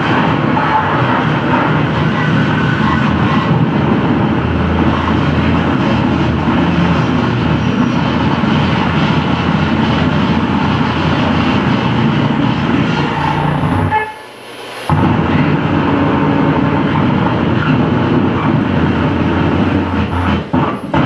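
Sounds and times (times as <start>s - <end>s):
distorted electronic noise: 0.0s - 21.0s.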